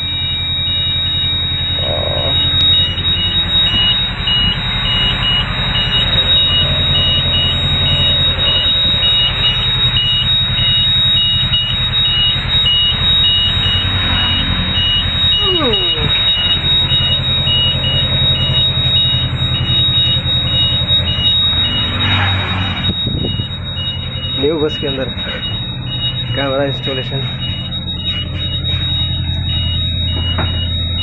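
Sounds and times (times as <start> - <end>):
bus engine humming: 0.0 - 31.0
short high electronic beeps: 13.3 - 17.7.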